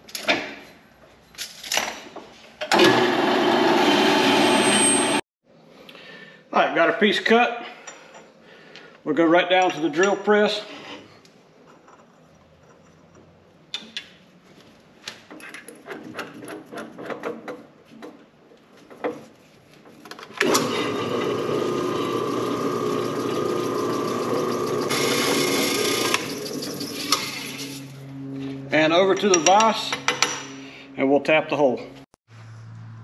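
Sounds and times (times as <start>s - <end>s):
drill bit cutting steel: 20.4s - 27.7s
drill press motor humming: 20.4s - 27.7s.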